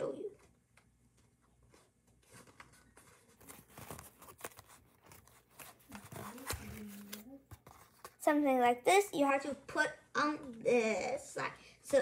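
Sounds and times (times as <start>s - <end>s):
paper rustling: 1.1s - 8.3s.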